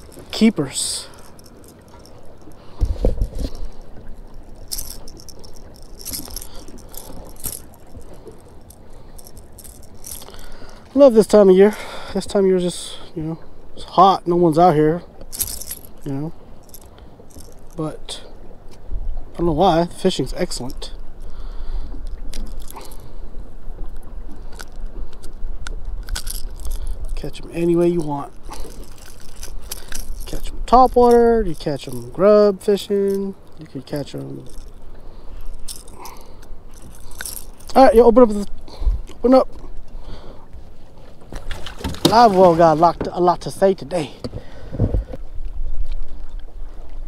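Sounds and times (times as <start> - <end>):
lure hooks rattling and clinking: 0.0 - 11.6, 14.6 - 18.2, 19.4 - 21.0, 22.0 - 23.2, 23.9 - 39.6, 41.3 - 44.2.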